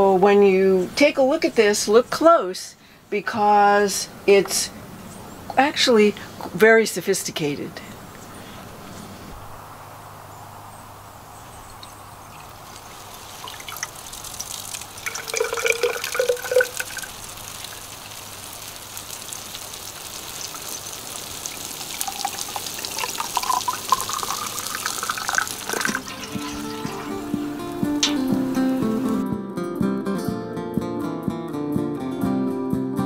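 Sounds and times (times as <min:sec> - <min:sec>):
water pouring and splashing: 0:11.7 - 0:29.2.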